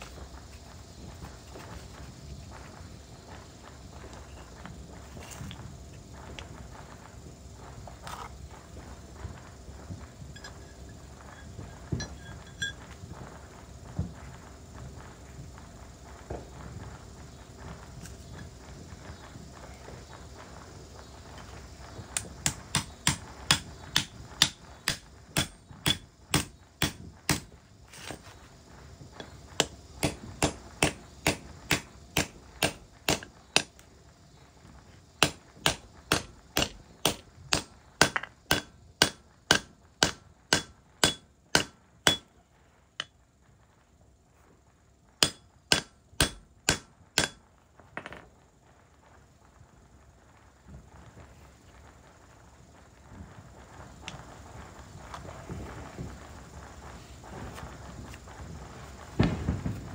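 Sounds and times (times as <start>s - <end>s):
hammer striking metal joint: 45.2s - 47.4s.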